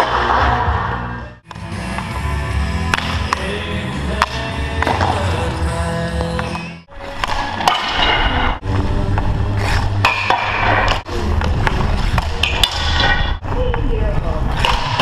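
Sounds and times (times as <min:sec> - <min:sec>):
music: 0:00.0 - 0:12.9
hockey stick hitting puck: 0:02.8 - 0:05.2, 0:07.1 - 0:08.6, 0:10.0 - 0:11.0, 0:11.6 - 0:13.3, 0:14.6 - 0:15.0
skates scraping on ice: 0:09.2 - 0:15.0.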